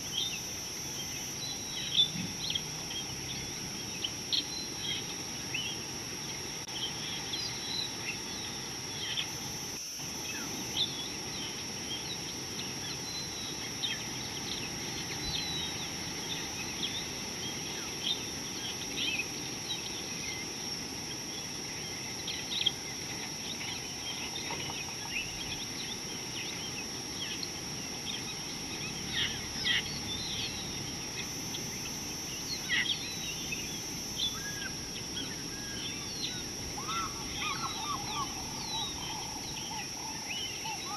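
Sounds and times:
high-pitched insect drone: 0.0s - 40.9s
bird chirps and calls: 36.8s - 40.9s.

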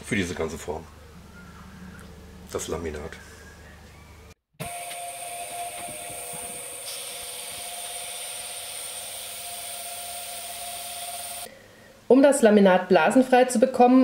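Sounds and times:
vacuum pump hissing and whining: 4.6s - 11.5s.

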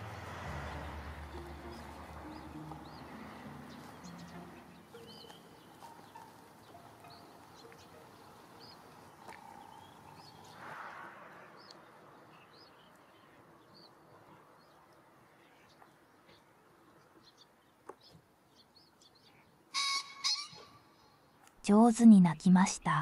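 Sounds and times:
small bird chirping: 3.7s - 10.6s.

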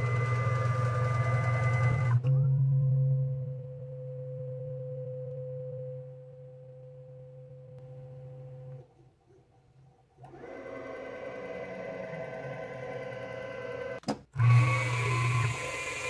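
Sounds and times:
machine motors whining: 0.0s - 2.3s, 10.2s - 16.0s.

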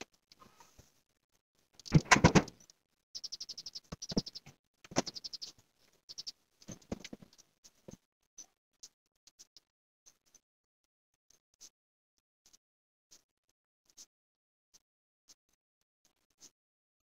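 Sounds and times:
small birds chirping: 1.6s - 10.4s.

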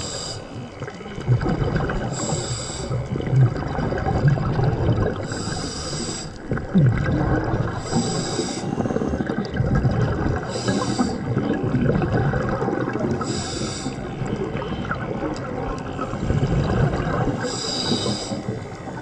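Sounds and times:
regulator inhale hiss: 0.0s - 0.8s, 2.1s - 3.2s, 5.2s - 6.5s, 7.7s - 9.4s, 10.4s - 11.4s, 13.1s - 14.8s, 17.3s - 19.0s
bubbly gurgling of exhaled air: 0.0s - 19.0s.

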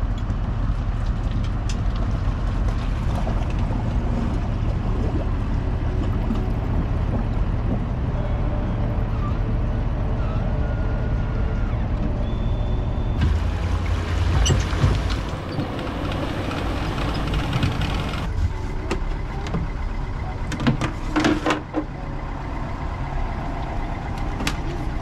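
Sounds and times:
vehicle engine running: 0.0s - 25.0s
sharp clicks and knocks: 14.3s - 19.7s.

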